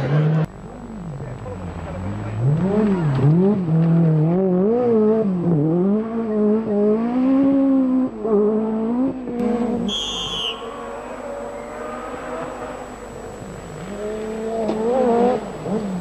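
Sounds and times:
rally car engine revving: 0.0s - 16.0s
high whistle: 9.8s - 12.0s.

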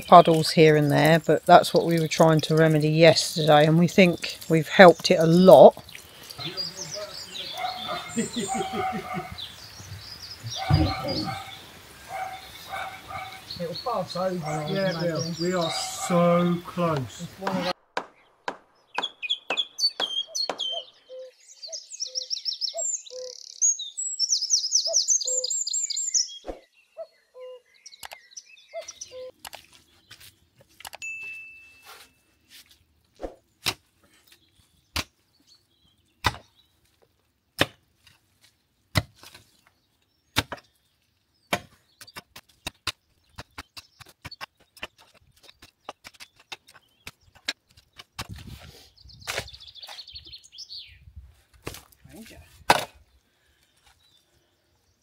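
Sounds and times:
birds chirping: 0.0s - 31.2s, 33.2s - 37.6s, 38.3s - 51.3s, 51.9s - 55.0s
hand tool striking stony ground: 38.9s - 39.5s, 41.5s - 48.5s.

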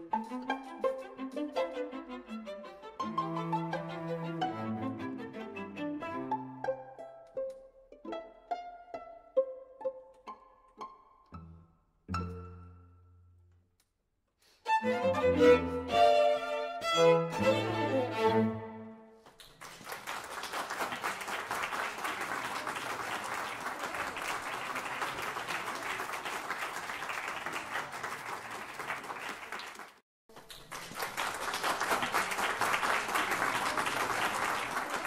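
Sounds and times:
audience applauding: 19.2s - 35.0s.

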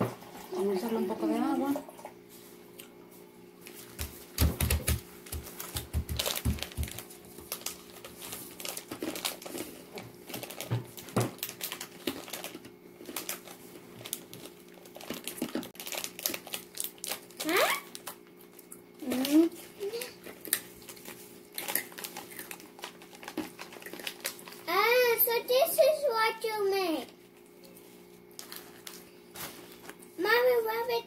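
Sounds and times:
plastic snack packet crinkling: 4.8s - 25.1s, 28.3s - 30.1s.

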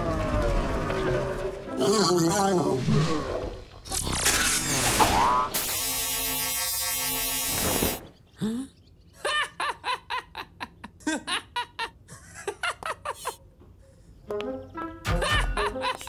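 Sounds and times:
cartoon laser electric buzz: 3.8s - 8.1s
boy laughing: 8.4s - 13.6s, 15.1s - 16.0s.

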